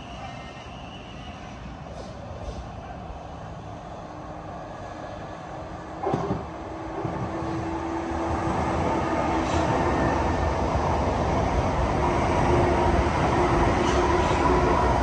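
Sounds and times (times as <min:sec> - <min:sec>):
train approaching with low hum: 0:00.0 - 0:15.0.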